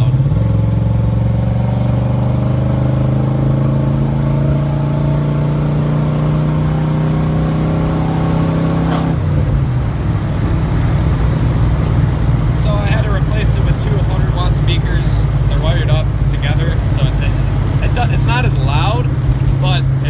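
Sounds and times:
engine running under throttle: 0:00.0 - 0:20.0.

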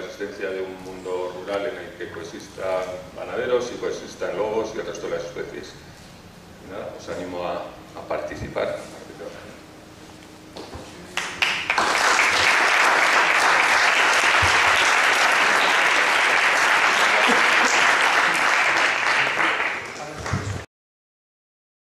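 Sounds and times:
audience applauding: 0:11.2 - 0:20.7.

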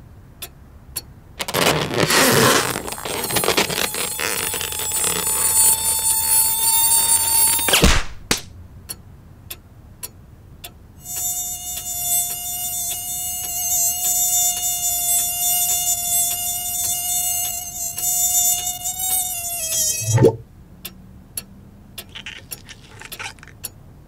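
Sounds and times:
mosquito buzzing: 0:01.4 - 0:07.9, 0:11.0 - 0:20.2
steady regular ticking: 0:08.4 - 0:19.6.

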